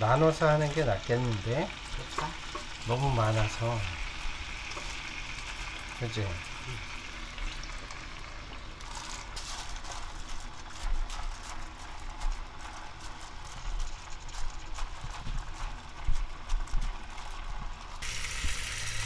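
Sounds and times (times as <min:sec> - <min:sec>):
stems knocking in a pan: 0:00.0 - 0:06.8.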